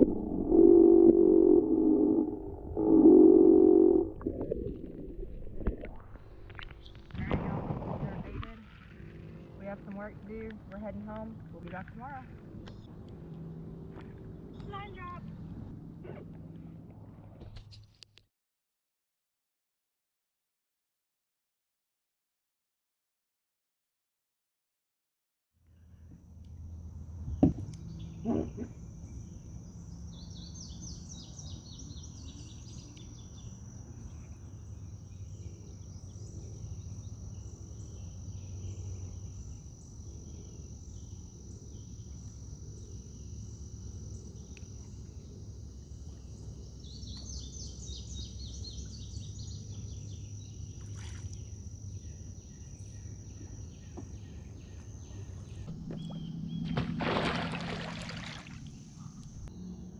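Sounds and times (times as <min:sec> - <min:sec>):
insect drone: 0:00.0 - 0:05.2, 0:25.8 - 0:59.9
low steady rumble: 0:00.0 - 0:06.5
bird calls: 0:27.3 - 0:29.5.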